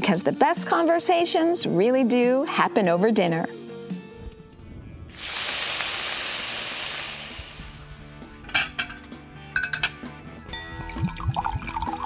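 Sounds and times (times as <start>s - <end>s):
faint music: 0.0s - 5.4s
pan sizzling: 5.1s - 8.7s
tableware clinking: 8.4s - 10.7s.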